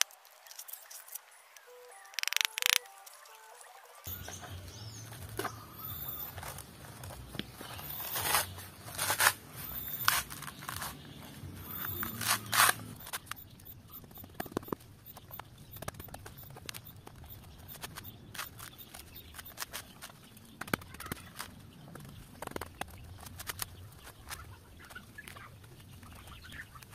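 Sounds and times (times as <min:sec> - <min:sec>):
fibres crackling: 0:00.0 - 0:26.9
coconut husk ripping: 0:04.2 - 0:13.4.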